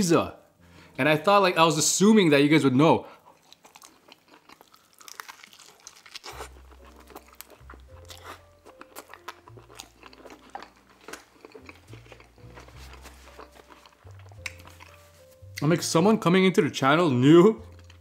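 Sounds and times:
soft background music: 0.0s - 18.0s
chewing pizza crust: 3.2s - 15.7s.

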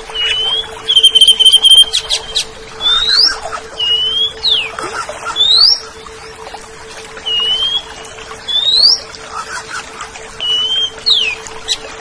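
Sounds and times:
steady low hum: 0.0s - 12.0s
bird whistling: 0.2s - 4.7s, 8.5s - 9.0s.

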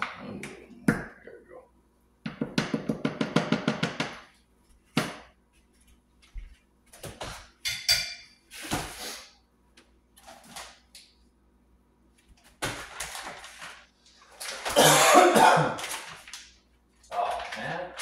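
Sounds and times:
cupboard doors knocking: 2.3s - 4.3s.

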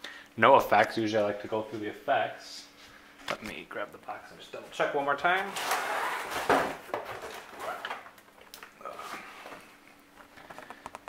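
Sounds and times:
handling knocks and rustles: 5.3s - 11.0s.

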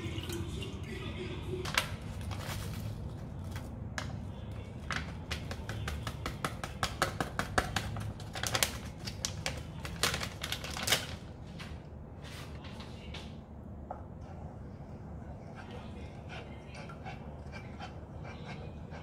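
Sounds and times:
packet tapping on saucepan: 4.8s - 11.0s
plastic packet crinkling: 8.4s - 11.3s.

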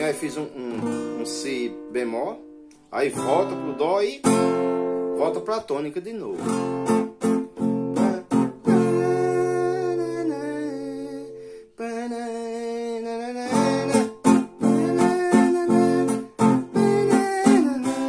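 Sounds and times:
man singing: 0.0s - 1.4s, 7.8s - 18.0s
acoustic guitar strumming: 0.0s - 18.0s.

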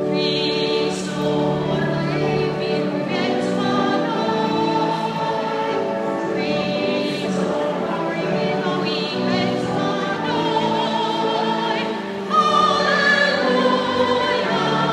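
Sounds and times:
choir singing a hymn: 0.0s - 14.9s.

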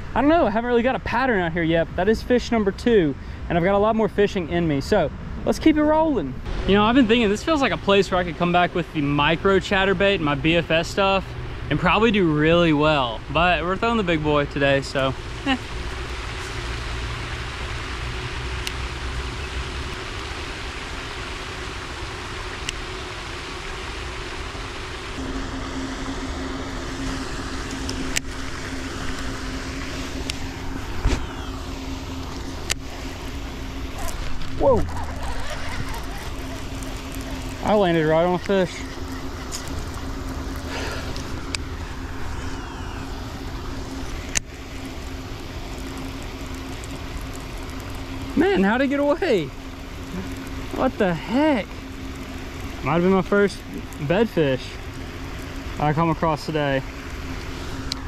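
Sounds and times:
rushing outdoor noise: 0.0s - 58.0s
steady low hum: 0.0s - 58.0s.

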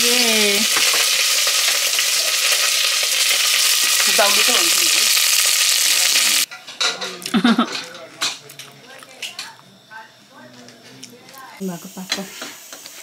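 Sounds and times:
food sizzling in hot oil: 0.0s - 6.5s, 11.6s - 13.0s.

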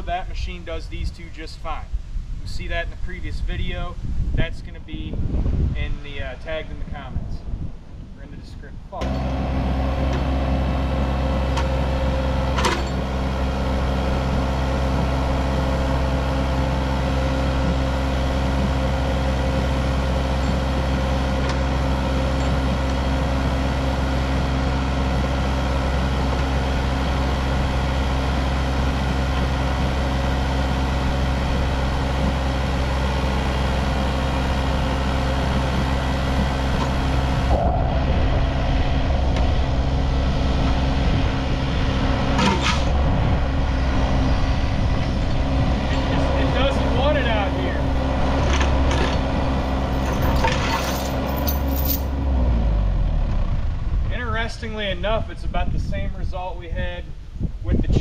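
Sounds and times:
diesel engine running: 8.9s - 55.2s.

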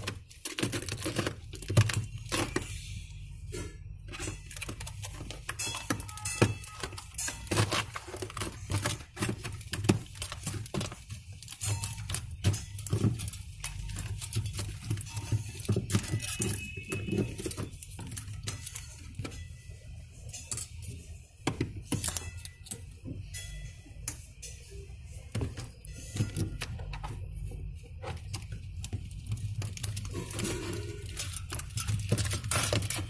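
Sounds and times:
foil crinkling: 0.0s - 2.7s, 4.1s - 19.4s, 27.9s - 33.0s.

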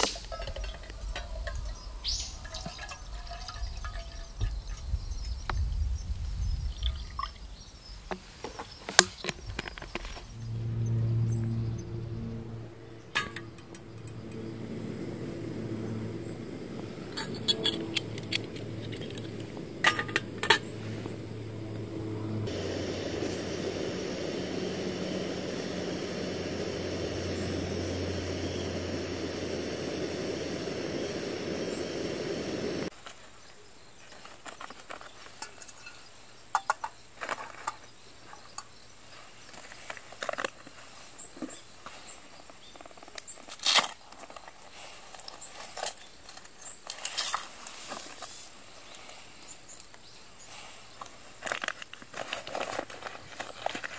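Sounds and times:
gas stove hissing: 0.0s - 4.1s, 22.4s - 32.9s
low hum: 9.6s - 32.9s.

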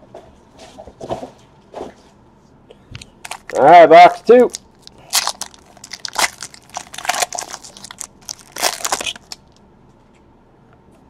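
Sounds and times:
foil wrapper tearing and crinkling: 3.2s - 9.6s.

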